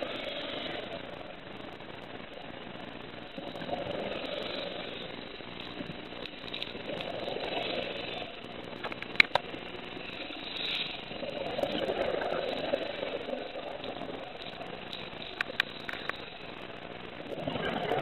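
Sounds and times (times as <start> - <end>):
underwater exhaled bubbles gurgling: 3.2 - 9.4, 10.0 - 18.0
sharp clicks: 15.4 - 16.2.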